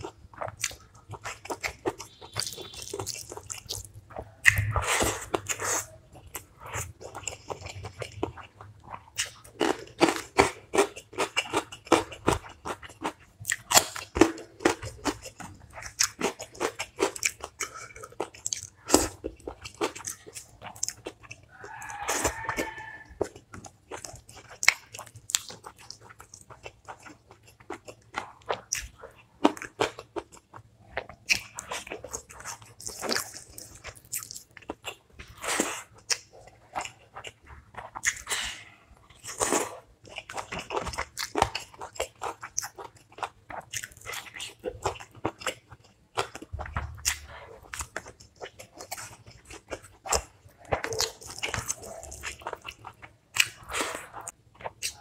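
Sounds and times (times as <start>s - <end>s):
person chewing crunchy food: 0.0s - 55.0s
sharp mouth clicks: 4.4s - 4.9s.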